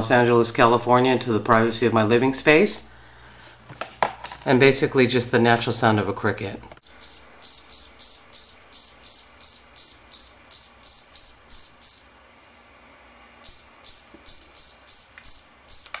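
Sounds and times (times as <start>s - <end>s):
cricket chirping through speakers: 6.8s - 12.2s, 13.4s - 16.0s.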